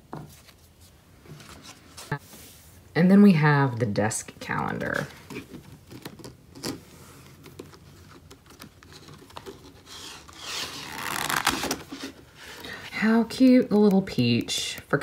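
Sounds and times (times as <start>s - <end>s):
paper rustling and scraping: 0.2s - 2.6s, 4.9s - 12.6s.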